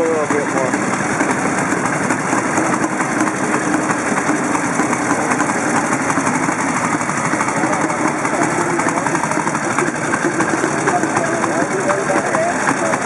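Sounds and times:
motorcycle engines idling: 0.0 - 13.0.

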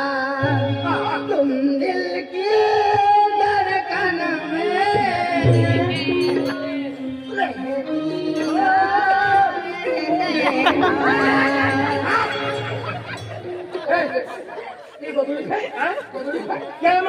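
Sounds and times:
person singing folk melody: 0.0 - 13.9.

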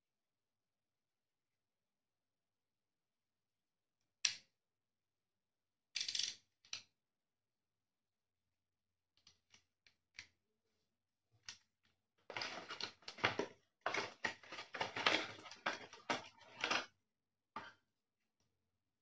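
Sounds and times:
cardboard rustling and scraping: 12.3 - 16.8.

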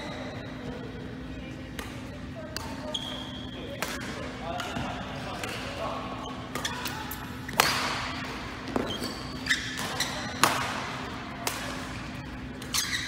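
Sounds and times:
court shoes squeaking: 0.0 - 0.8, 1.7 - 13.0
racket striking shuttlecock: 6.5 - 11.9.

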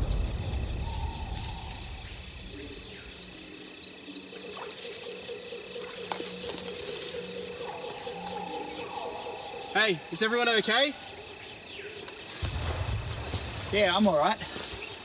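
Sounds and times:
explosion rumble: 0.0 - 2.6
insects chirping: 0.0 - 15.0
debris crackle: 12.1 - 15.0.

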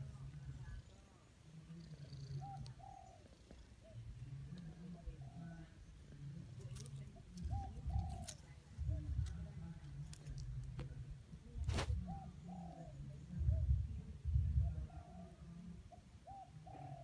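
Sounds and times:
doves cooing: 0.0 - 11.0, 11.7 - 17.0
short sharp rustle: 11.6 - 12.0.

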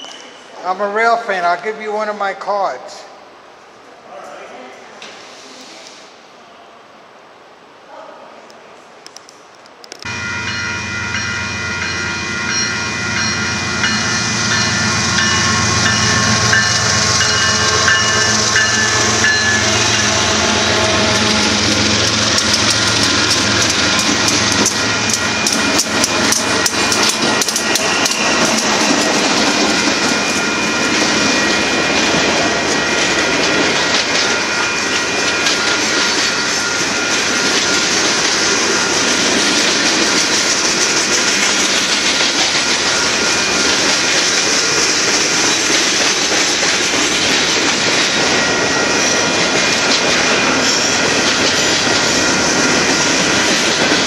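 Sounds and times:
train rolling rumble: 9.8 - 54.0
train wheels clacking over rail joints: 12.5 - 30.2, 37.4 - 54.0.

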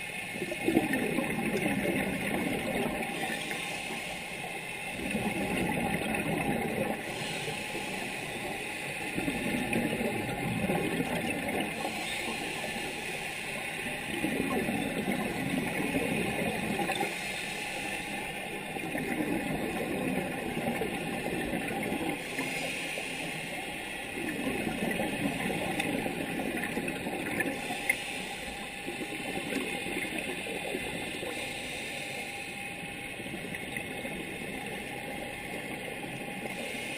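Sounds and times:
regulator inhalation hiss: 3.2 - 4.7, 7.0 - 9.2, 11.8 - 14.1, 16.9 - 18.6, 22.2 - 24.2, 27.5 - 28.8, 31.1 - 32.8, 36.4 - 36.9.

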